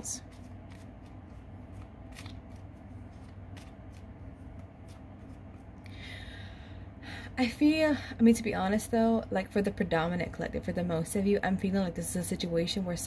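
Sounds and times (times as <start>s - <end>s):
cards shuffling: 0.0s - 5.9s.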